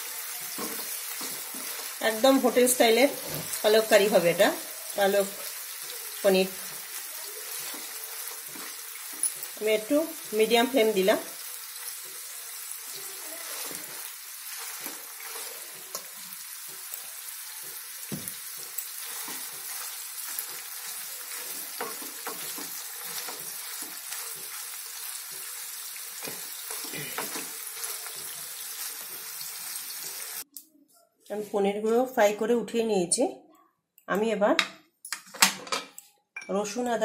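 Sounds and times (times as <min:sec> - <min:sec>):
cheese sizzling in oil: 0:00.0 - 0:30.5
spatula tapping and scraping: 0:00.4 - 0:01.9, 0:21.3 - 0:24.6.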